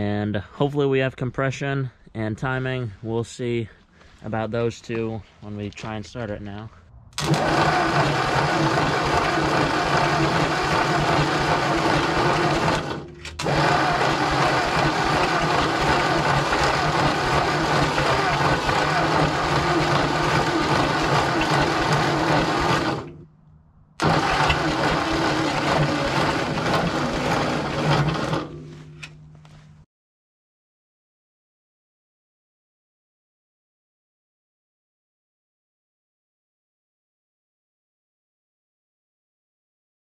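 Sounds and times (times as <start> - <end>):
starter motor cranking engine: 7.2 - 23.2, 24.0 - 29.2.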